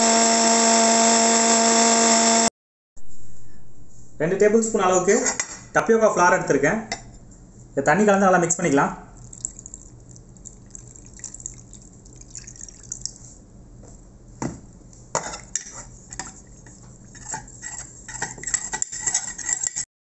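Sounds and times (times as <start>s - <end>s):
water trickling into a bowl: 9.2s - 13.3s
spoon stirring and clinking bowl: 15.2s - 19.8s.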